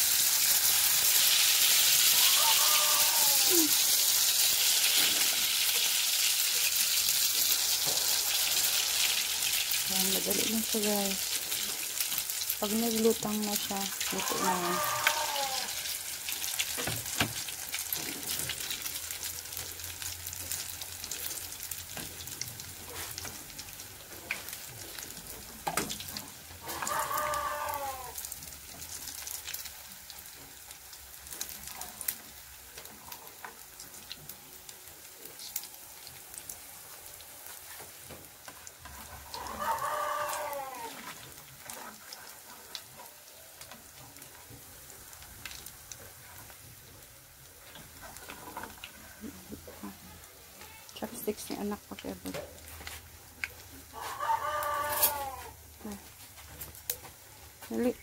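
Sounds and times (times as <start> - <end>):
batter sizzling in oil: 0.0 - 58.0
rooster crowing: 2.1 - 3.7, 14.1 - 15.9, 26.6 - 28.2, 39.2 - 41.1, 53.9 - 55.6.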